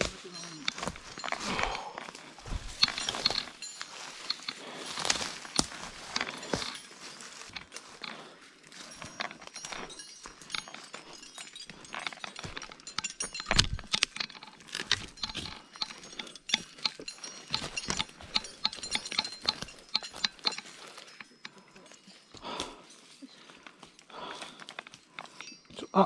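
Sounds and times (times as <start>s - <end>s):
climbing hardware clinking: 0.0s - 26.0s
boots knocking on rock: 2.4s - 3.0s.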